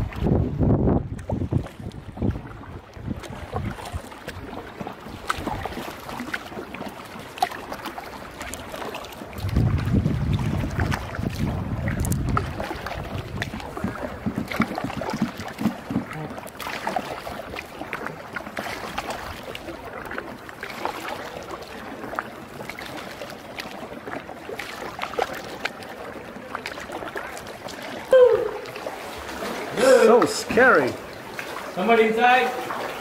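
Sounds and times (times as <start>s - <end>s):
wind rumble on microphone: 0.0s - 4.5s, 9.3s - 16.3s
water splashing around a canoe: 0.0s - 33.0s.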